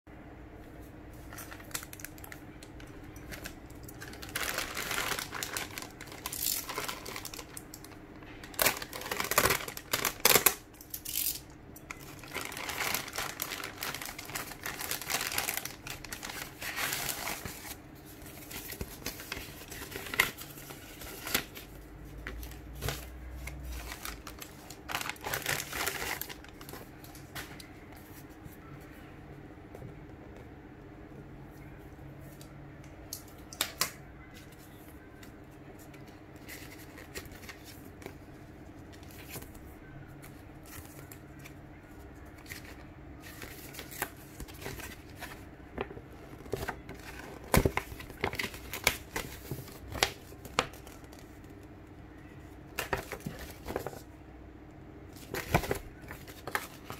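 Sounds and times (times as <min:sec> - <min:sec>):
plastic bag tearing and crinkling: 0:03.3 - 0:17.8, 0:23.4 - 0:26.7.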